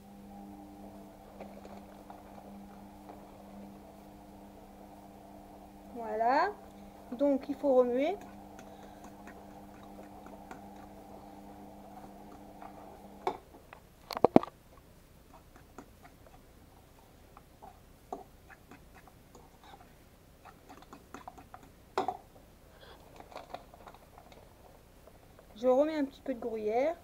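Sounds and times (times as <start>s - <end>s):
steady low hum: 0.0s - 27.0s
fork stirring in bowl: 6.6s - 13.3s, 15.3s - 16.5s, 18.1s - 21.8s.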